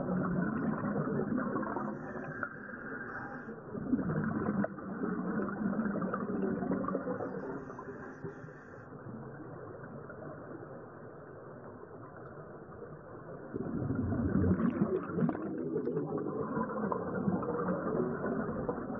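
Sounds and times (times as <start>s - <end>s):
muffled underwater noise: 0.0s - 18.9s
divers exhaling bubbles: 3.7s - 7.4s, 13.5s - 18.9s.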